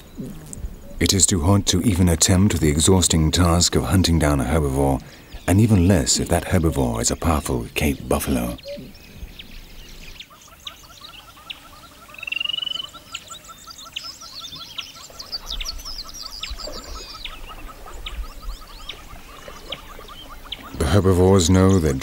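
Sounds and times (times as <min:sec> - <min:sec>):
high bird chirps: 0:06.5 - 0:20.8.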